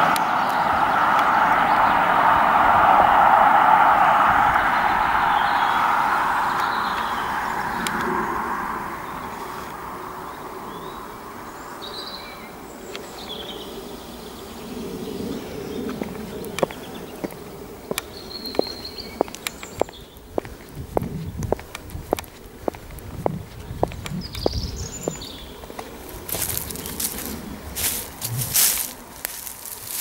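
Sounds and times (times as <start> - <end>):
vehicle passing by: 0.0 - 11.8, 22.1 - 30.0
bird chirps: 4.7 - 8.1, 24.1 - 25.6
footsteps on dry twigs: 15.9 - 30.0.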